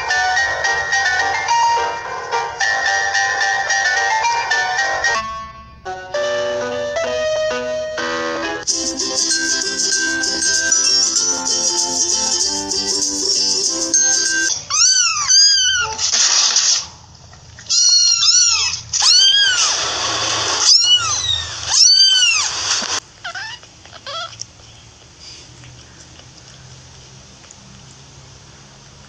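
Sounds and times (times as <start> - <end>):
kitten meowing: 17.7 - 19.8, 20.6 - 22.5, 23.2 - 24.4.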